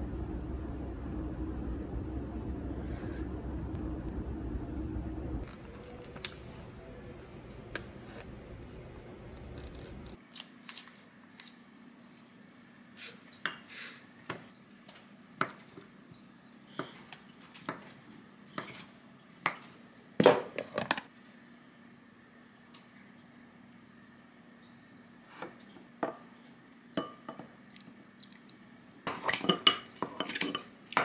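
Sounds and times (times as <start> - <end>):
low room rumble: 0.0 - 10.2.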